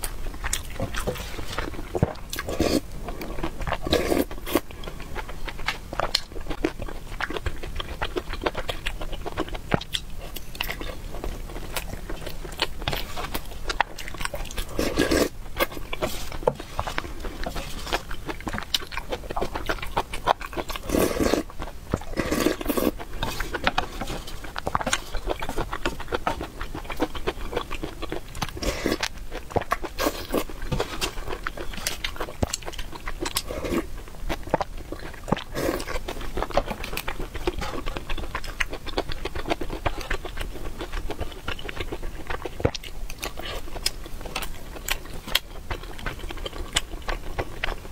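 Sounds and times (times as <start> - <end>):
chewing meat: 0.0 - 47.9
slurping broth: 0.9 - 4.7, 14.6 - 18.1, 20.8 - 21.5, 22.1 - 25.2, 28.5 - 29.1.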